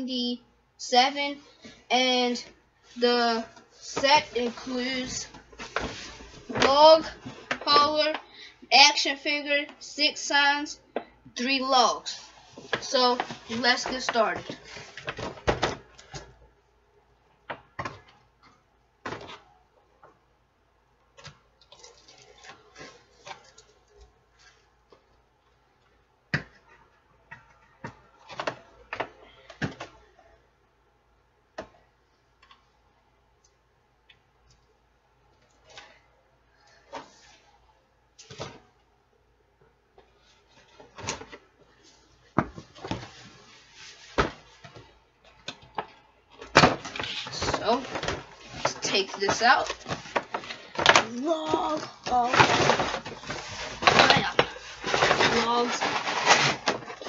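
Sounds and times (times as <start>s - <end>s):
rustles and clicks: 46.8s - 57.0s.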